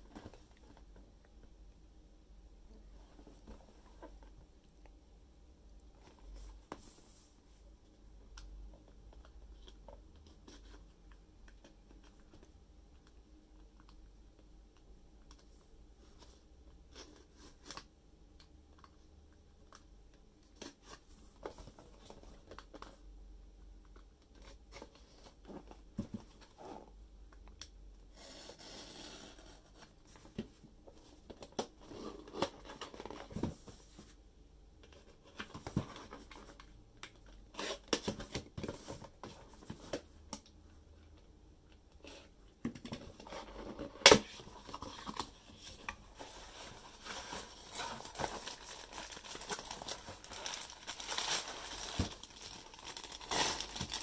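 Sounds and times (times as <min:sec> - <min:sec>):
cardboard and plastic packaging opened: 0:42.9 - 0:54.0
packaging rustling: 0:44.2 - 0:54.0.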